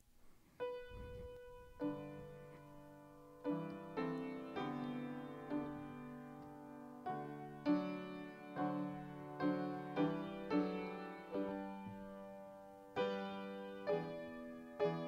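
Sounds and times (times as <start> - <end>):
slow solo piano piece: 0.0 - 15.0.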